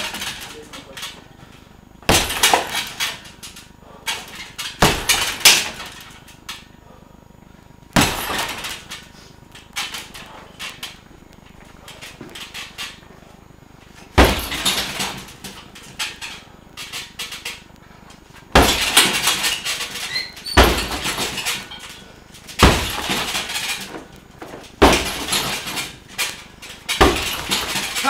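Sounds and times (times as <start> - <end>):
kicks thudding into heavy bag: 2.0 - 3.2, 4.6 - 6.0, 8.0 - 8.8, 14.1 - 15.5, 18.5 - 21.6, 22.5 - 26.1, 26.9 - 28.0.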